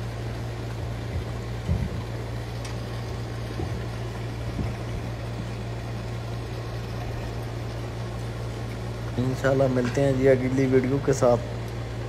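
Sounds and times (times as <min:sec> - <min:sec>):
electrical hum from control panel: 0:00.0 - 0:12.0
pump running: 0:00.0 - 0:12.0.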